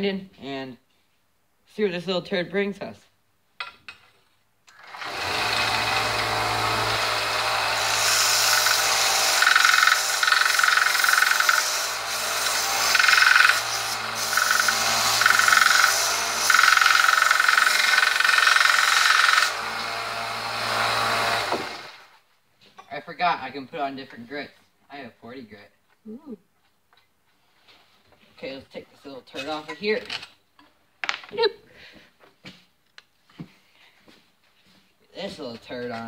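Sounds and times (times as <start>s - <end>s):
belt sander motor hum: 4.8s - 22.0s
steel grinding on belt: 5.8s - 19.8s.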